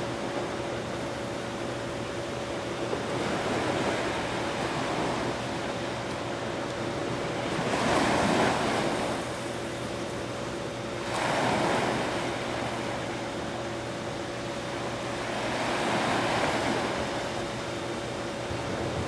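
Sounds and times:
faint steady hum: 0.0 - 19.0
small waves washing onto beach: 7.0 - 9.6, 11.0 - 13.4, 14.8 - 17.6.

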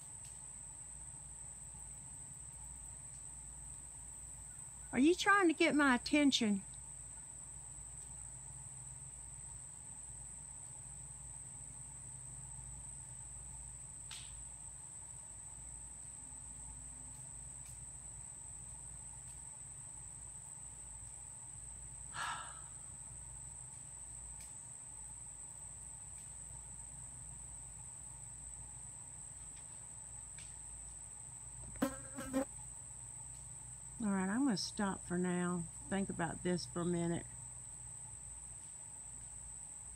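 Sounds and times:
insects chorus: 0.0 - 39.9.

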